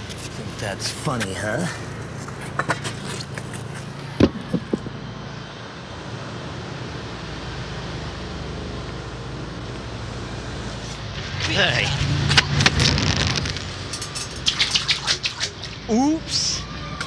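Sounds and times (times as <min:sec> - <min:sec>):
city street traffic: 0:00.0 - 0:17.0
sharp knocks: 0:04.2 - 0:05.0.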